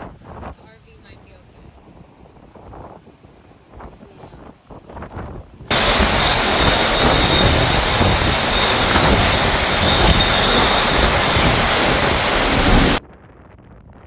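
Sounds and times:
faint high wind whistle: 5.7s - 13.0s
strong wind and driving rain: 5.7s - 13.0s.

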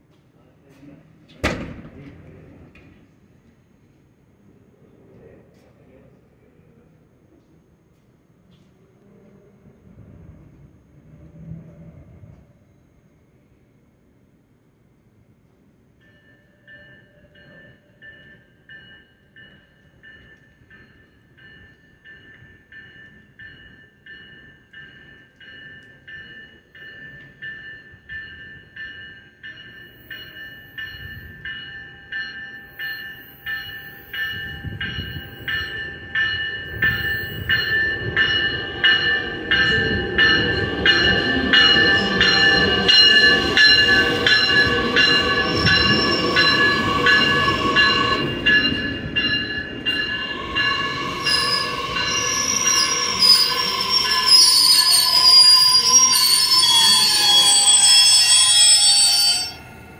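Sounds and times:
train bell ringing: 15.9s - 59.9s
train wheels rumbling on rail: 19.5s - 59.9s
train wheels squealing: 29.5s - 59.9s.

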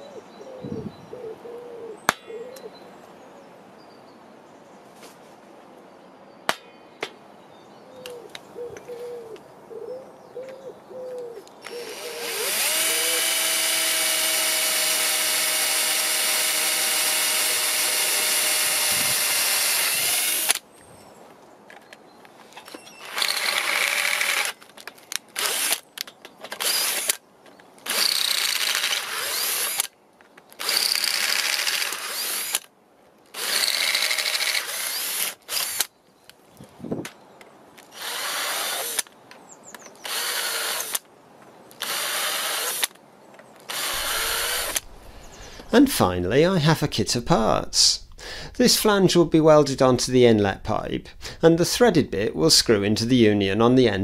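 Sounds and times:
power drill boring through steel: 11.7s - 20.6s, 23.0s - 24.6s, 26.6s - 27.2s, 27.9s - 29.9s, 30.6s - 32.6s, 33.4s - 35.9s, 38.0s - 39.0s, 40.0s - 41.0s, 41.8s - 42.9s, 43.7s - 45.7s.

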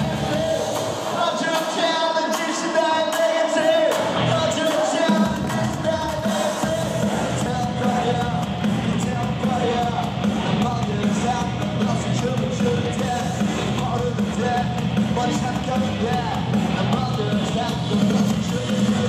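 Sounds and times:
drum kit and cymbals: 0.0s - 2.0s, 3.9s - 19.0s
rock band playing live: 5.2s - 19.0s.

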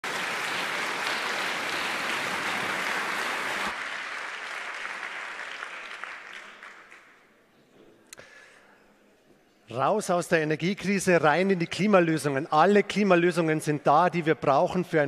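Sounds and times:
audience applause in a hall: 0.0s - 7.5s.

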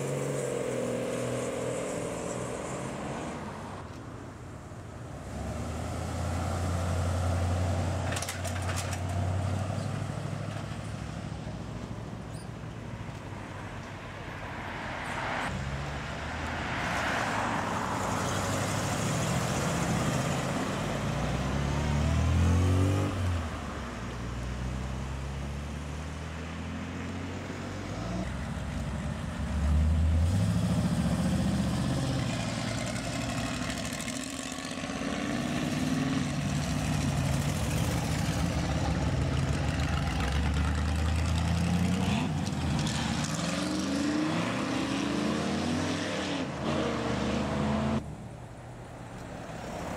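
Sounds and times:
car engines accelerating past: 14.9s - 23.6s, 24.3s - 48.0s.

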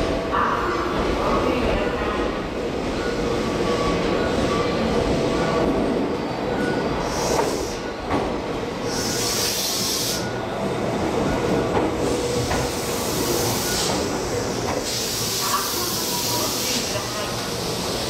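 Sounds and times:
air hiss bursts: 8.8s - 10.2s
train running gear rumbling: 10.5s - 15.0s.

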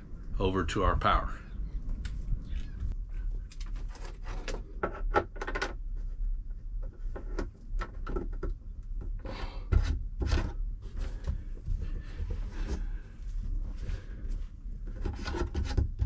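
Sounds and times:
low rumble: 0.0s - 3.6s
cable rubbing and scraping: 13.6s - 16.0s.

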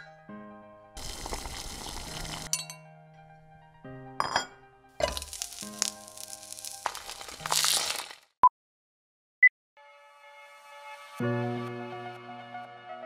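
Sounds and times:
background music: 0.0s - 7.8s, 9.8s - 13.0s
frying sizzling: 1.0s - 2.5s, 5.1s - 8.3s
glass clinking: 2.5s - 2.9s, 4.2s - 5.4s.

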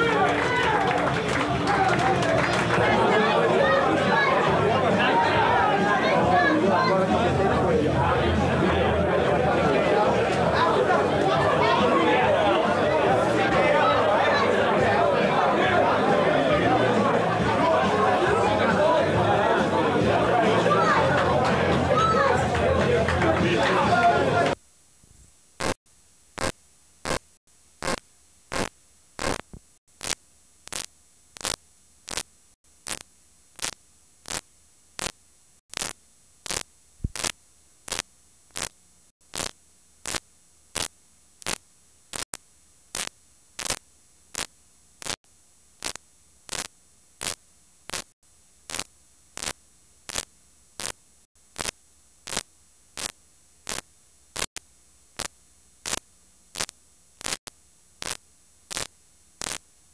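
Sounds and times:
tape static hiss and hum: 0.0s - 59.9s
sharp crackles: 25.2s - 59.8s.

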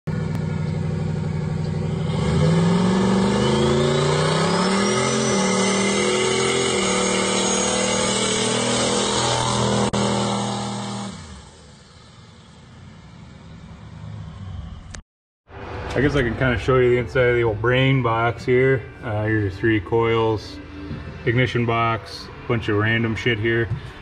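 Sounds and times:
car engine revving hard: 1.0s - 12.2s.

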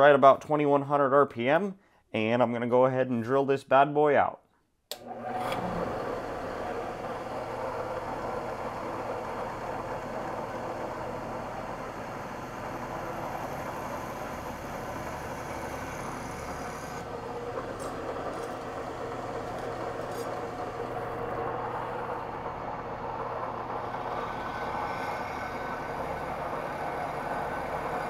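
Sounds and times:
drill press motor hum: 4.9s - 28.0s
drill bit cutting hiss: 10.3s - 17.1s, 23.8s - 28.0s.

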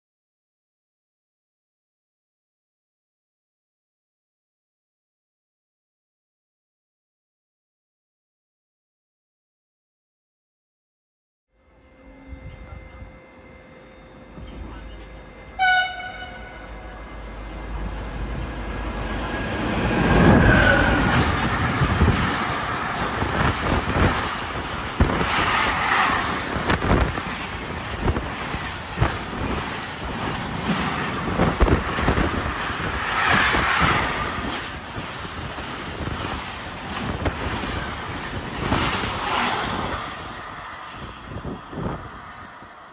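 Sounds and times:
freight train passing: 11.6s - 42.9s
locomotive horn toot: 15.5s - 16.9s.

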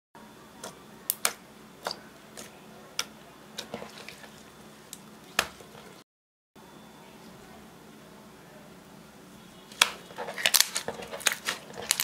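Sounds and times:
faint steady hum: 6.6s - 12.0s.

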